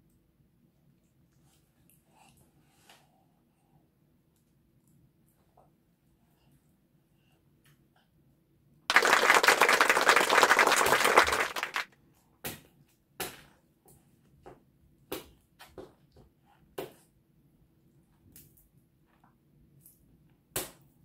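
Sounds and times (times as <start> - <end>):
applause: 8.9 - 11.9.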